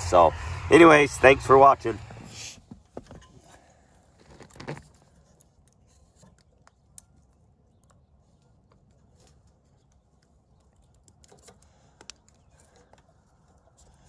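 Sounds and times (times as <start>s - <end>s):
fingers handling wire connectors: 4.2s - 14.0s.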